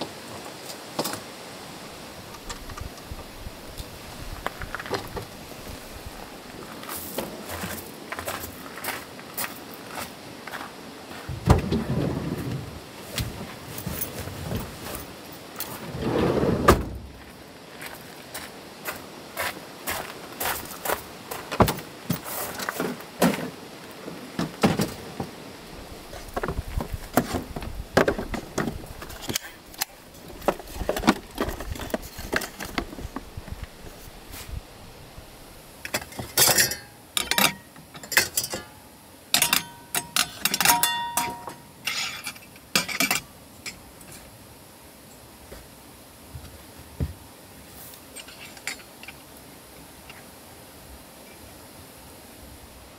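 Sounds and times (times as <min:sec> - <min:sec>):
wooden boxes and bottles clattering: 0:21.5 - 0:25.4, 0:30.2 - 0:33.2
metal frying pans clinking: 0:36.0 - 0:38.8, 0:39.4 - 0:43.3.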